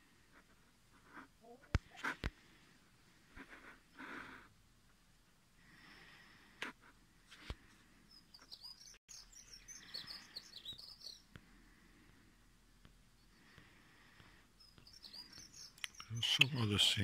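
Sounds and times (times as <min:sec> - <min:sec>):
starling singing: 0:14.6 - 0:17.0.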